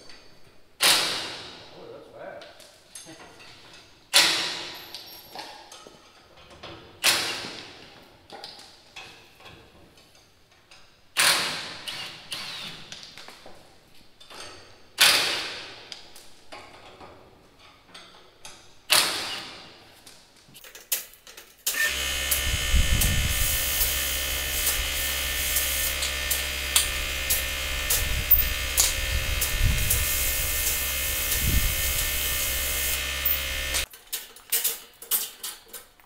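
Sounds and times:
machine whirring with whine: 0:21.7 - 0:33.9.

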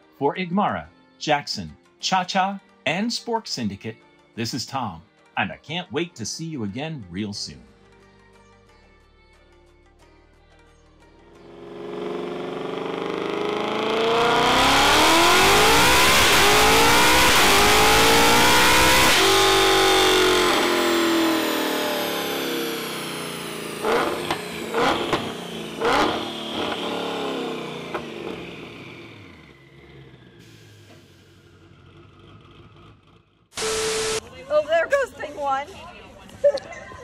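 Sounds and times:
car engine revving past: 0:11.4 - 0:33.3.

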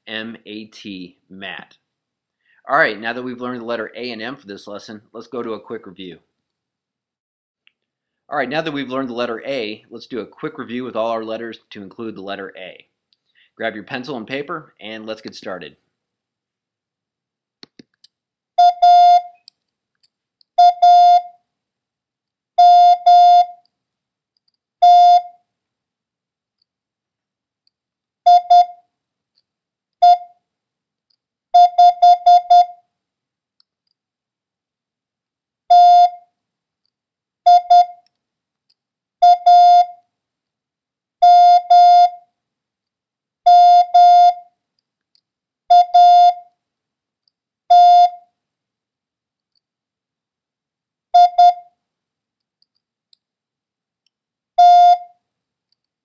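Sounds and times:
morse code tone: 0:18.6 - 0:19.4, 0:20.6 - 0:21.3, 0:22.6 - 0:23.6, 0:24.8 - 0:25.3, 0:28.3 - 0:28.8, 0:31.6 - 0:32.8, 0:35.7 - 0:36.2, 0:37.5 - 0:38.0, 0:39.2 - 0:40.0, 0:41.2 - 0:42.2, 0:43.5 - 0:44.5, 0:45.7 - 0:46.4, 0:47.7 - 0:48.2, 0:51.2 - 0:51.7, 0:54.6 - 0:55.1.

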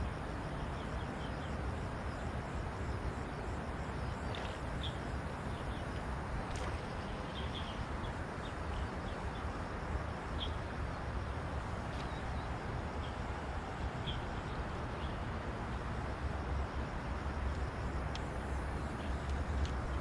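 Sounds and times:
wind rumble on microphone: 0:00.0 - 0:20.0.

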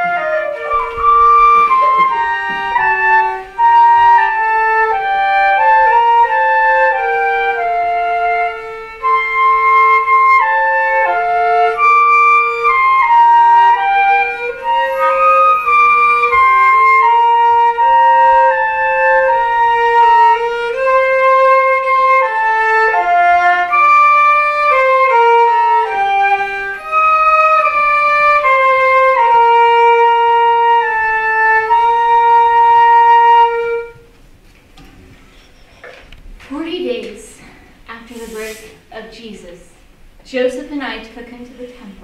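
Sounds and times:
erhu melody: 0:00.0 - 0:34.1
flute melody: 0:00.0 - 0:34.2.

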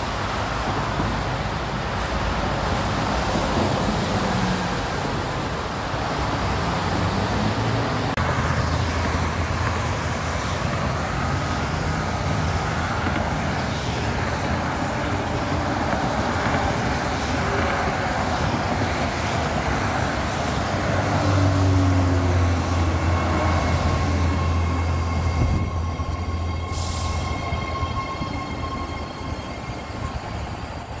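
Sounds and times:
train rumble and wheel noise: 0:00.0 - 0:31.0
train whine slowing: 0:08.2 - 0:31.0.

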